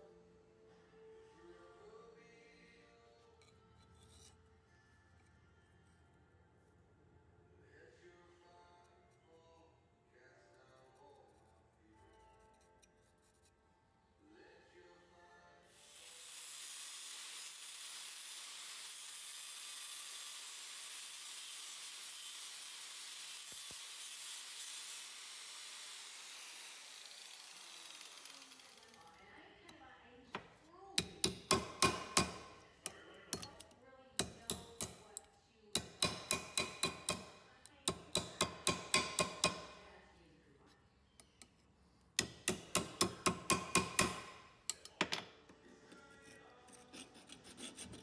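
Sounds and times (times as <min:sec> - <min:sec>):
angle grinder disc hissing: 0:15.8 - 0:29.1
hammer tapping metal: 0:30.4 - 0:39.8, 0:42.2 - 0:45.3.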